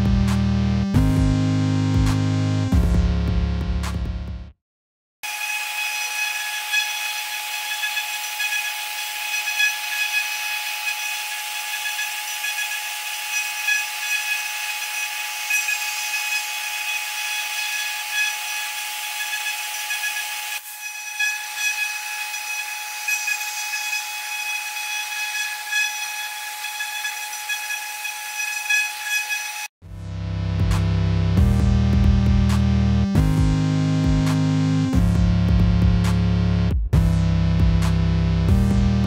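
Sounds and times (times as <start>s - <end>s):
router spindle whining: 5.2s - 29.7s.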